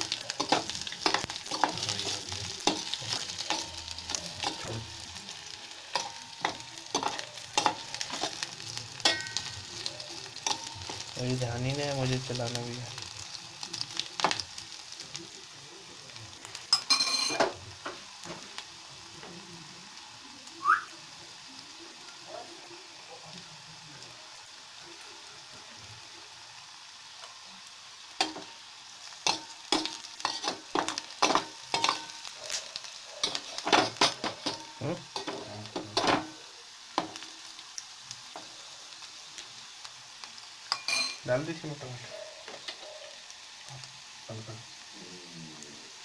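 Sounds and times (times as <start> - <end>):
onions sizzling in hot oil: 0.0 - 46.0
spoon clattering: 5.9 - 8.4, 9.0 - 11.0, 16.7 - 17.6, 29.2 - 32.3, 40.7 - 41.3.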